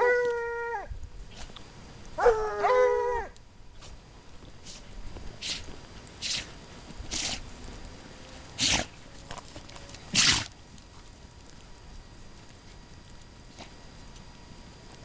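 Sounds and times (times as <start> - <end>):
hounds snorting: 4.6 - 11.1, 13.5 - 13.8.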